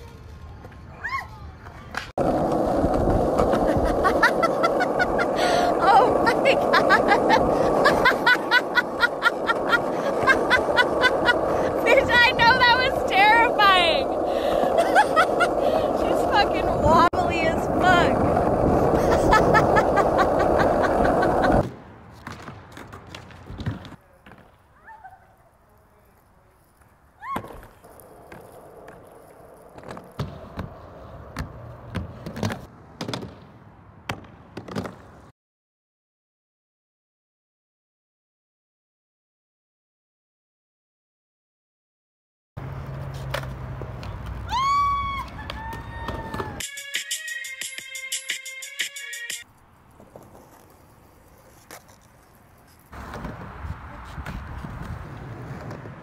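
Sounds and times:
skateboard wheels rolling on pavement: 0:00.0 - 0:35.3, 0:42.6 - 0:56.0
skateboard clacking on ground and ramp: 0:15.3 - 0:24.7, 0:26.2 - 0:33.5, 0:34.1 - 0:35.3, 0:49.9 - 0:56.0.

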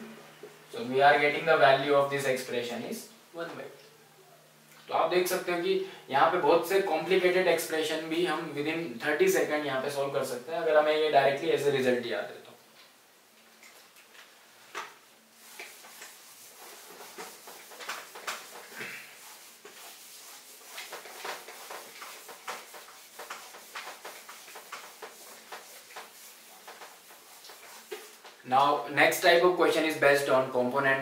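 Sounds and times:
eraser wiping whiteboard: 0:14.8 - 0:28.5.

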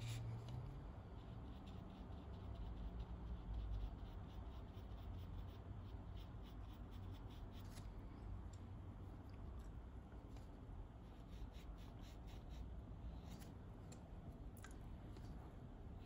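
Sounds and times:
low steady hum: 0:00.0 - 0:16.0
paintbrush scratching on paper: 0:01.0 - 0:07.8, 0:11.0 - 0:13.5.

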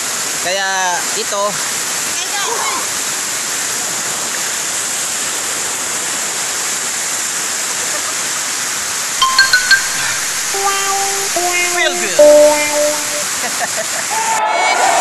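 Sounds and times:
short bright musical notes: 0:09.2 - 0:13.4.

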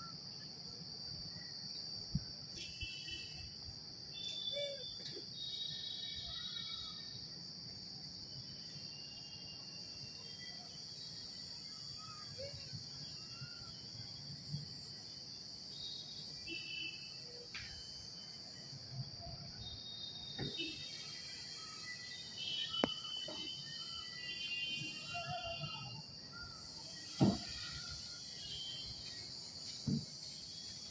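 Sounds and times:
high-pitched insect chorus: 0:00.0 - 0:30.9
soft knocks: 0:29.8 - 0:30.1.

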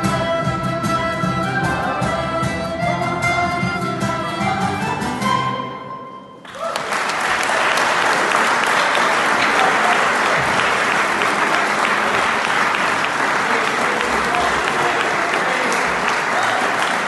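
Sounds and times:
folk group playing: 0:00.0 - 0:17.0
applause: 0:06.4 - 0:17.0.

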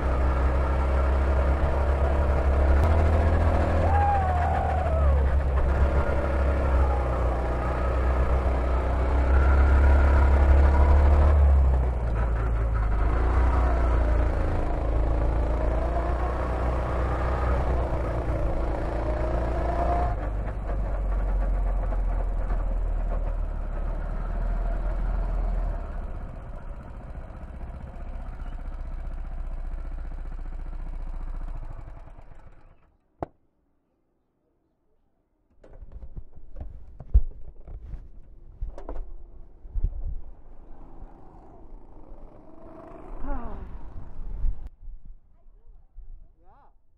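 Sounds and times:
go-kart engine running: 0:00.0 - 0:32.9, 0:40.3 - 0:44.7
wind: 0:00.0 - 0:46.9
knocks and rattles: 0:35.5 - 0:39.2.

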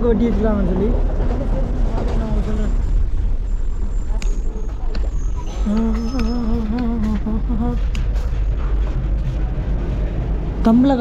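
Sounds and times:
low rumble: 0:00.0 - 0:11.0
person humming a wavering tone: 0:05.6 - 0:07.8.

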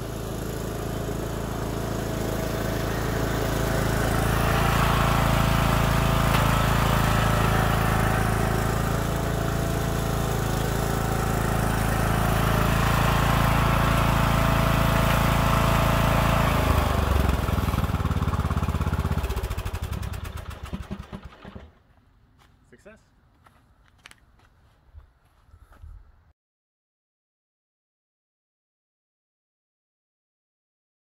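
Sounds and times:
lawn mower engine running: 0:00.0 - 0:22.0.

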